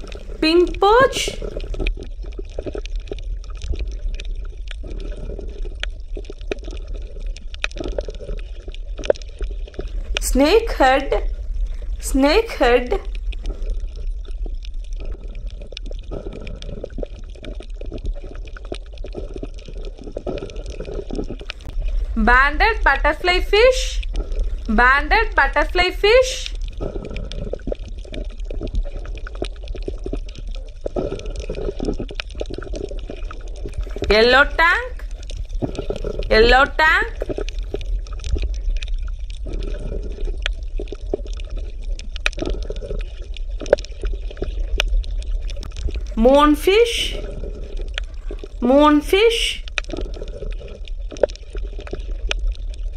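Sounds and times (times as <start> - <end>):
water bubbling and gurgling: 0.0 - 52.9
steady low hum: 21.4 - 27.8
steady low rumble: 21.4 - 28.8, 33.5 - 40.1
small pops and clicks: 40.4 - 46.1.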